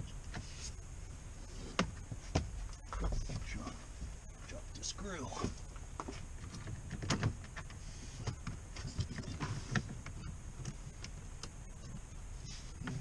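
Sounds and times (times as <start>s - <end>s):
clicks and knocks of screws and panel: 6.0s - 11.6s.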